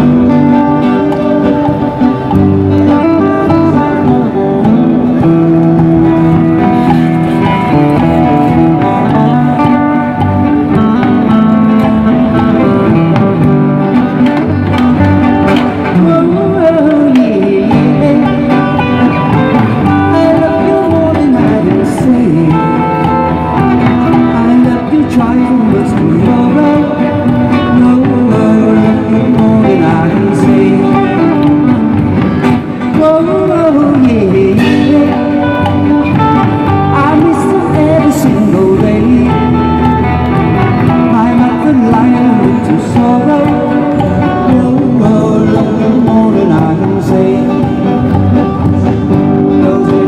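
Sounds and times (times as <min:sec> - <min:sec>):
drum kit beat: 0:00.0 - 0:50.0
electric guitar: 0:00.0 - 0:50.0.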